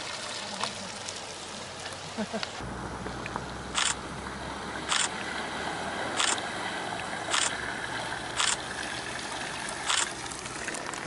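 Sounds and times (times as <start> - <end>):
bicycle splashing through water: 0.0 - 11.0
steady rush of water: 0.0 - 11.0.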